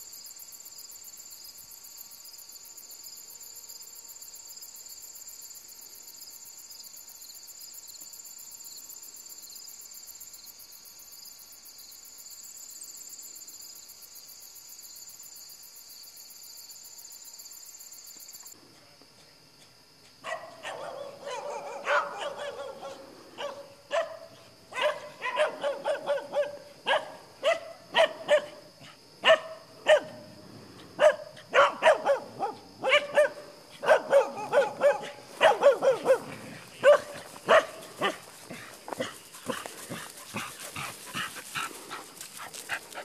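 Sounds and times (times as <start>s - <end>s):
dogs barking: 20.2s - 28.6s, 29.2s - 30.2s, 31.0s - 41.8s.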